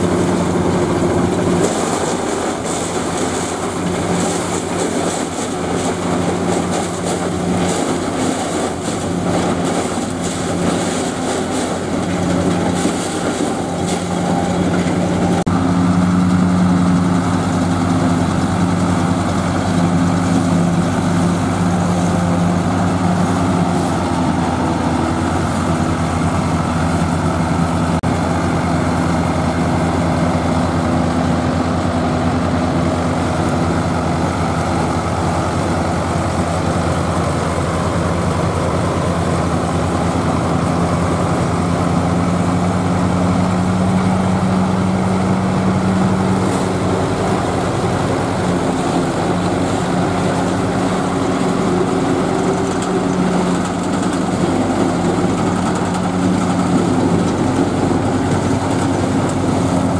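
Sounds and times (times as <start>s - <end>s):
forage harvester chopping maize: 0.0s - 25.8s, 44.8s - 59.9s
tractor diesel engines under load: 0.0s - 59.9s.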